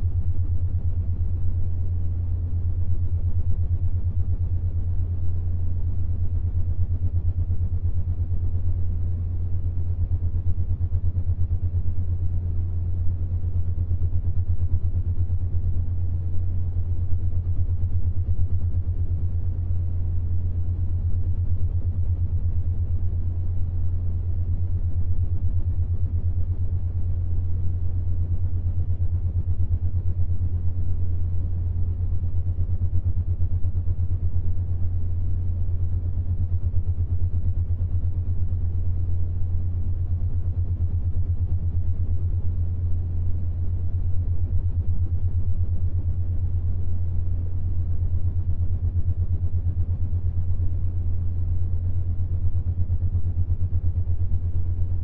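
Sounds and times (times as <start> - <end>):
steady low drone: 0.0 - 55.0.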